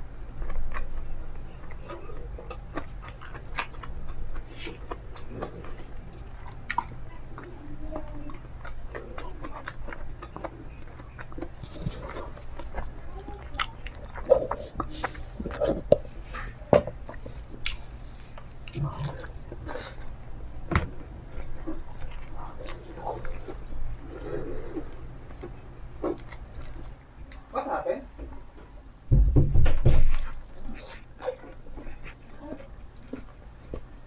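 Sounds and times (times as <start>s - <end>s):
person chewing crispy food: 0.0s - 27.4s, 30.1s - 34.0s.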